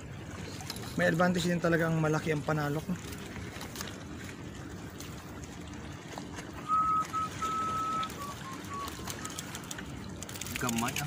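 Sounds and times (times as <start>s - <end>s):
person whistling a tune: 6.6s - 9.4s.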